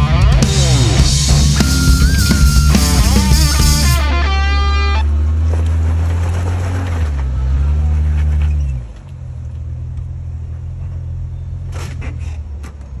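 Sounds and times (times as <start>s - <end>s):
vehicle engine crawling over rock: 4.2s - 13.0s.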